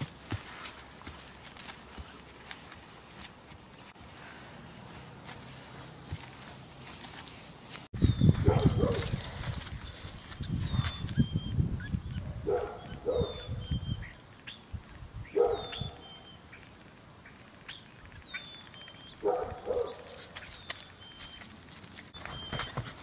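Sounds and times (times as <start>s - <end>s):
small bird chirping: 8.0s - 19.2s
dog barking: 8.4s - 9.2s, 12.4s - 13.5s, 15.4s - 15.9s, 19.2s - 20.2s.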